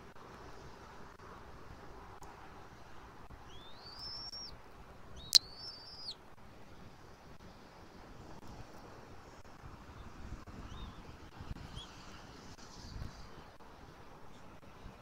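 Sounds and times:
eaglet high peeping calls: 0:03.5 - 0:04.5, 0:05.2 - 0:06.2.

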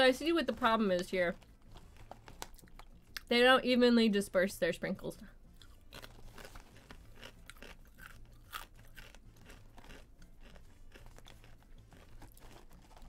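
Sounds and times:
person chewing crunchy chips: 0:01.4 - 0:03.3, 0:05.4 - 0:13.0.

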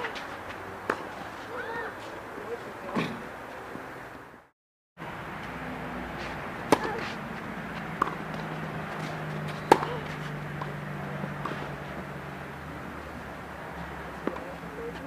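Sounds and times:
tennis ball hit by racket: 0:00.8 - 0:01.6, 0:06.2 - 0:12.1, 0:14.2 - 0:15.0.

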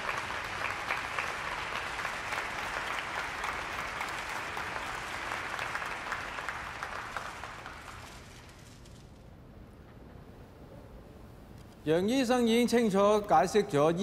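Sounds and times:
audience applause: 0:00.0 - 0:08.7.

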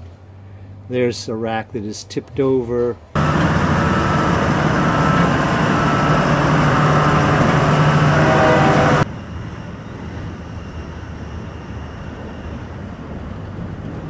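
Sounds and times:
background drone: 0:03.1 - 0:14.0
loud machine hum: 0:03.2 - 0:13.2.

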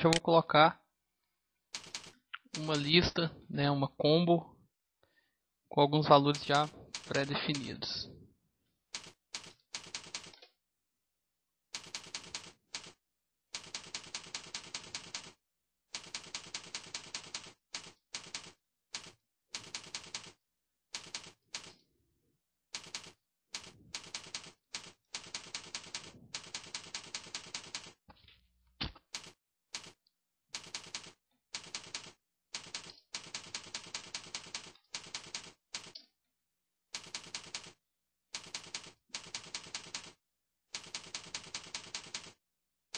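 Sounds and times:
typing on computer keyboard: 0:01.7 - 0:02.9, 0:06.3 - 0:07.8, 0:08.9 - 0:10.5, 0:11.8 - 0:21.8, 0:22.8 - 0:28.0, 0:29.1 - 0:30.0, 0:30.6 - 0:36.0, 0:36.9 - 0:37.8, 0:38.4 - 0:42.4.

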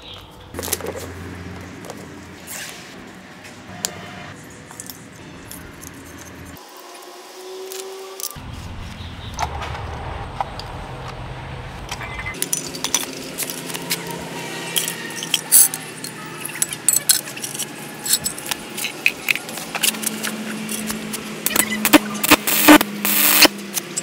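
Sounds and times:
metal tools clinking on concrete: 0:04.4 - 0:06.6, 0:12.4 - 0:21.8
low hum: 0:08.4 - 0:15.3.

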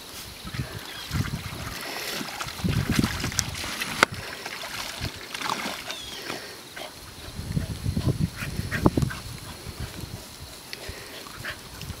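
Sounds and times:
water splashing in wading pool: 0:00.5 - 0:07.0.

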